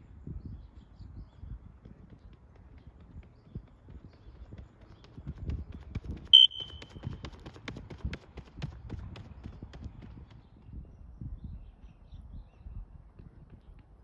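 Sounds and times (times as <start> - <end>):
running footfalls on track: 1.4 - 10.5.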